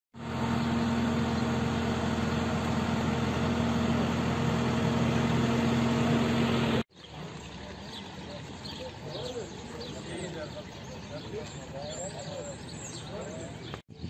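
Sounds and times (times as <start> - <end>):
engine idling: 0.2 - 6.8.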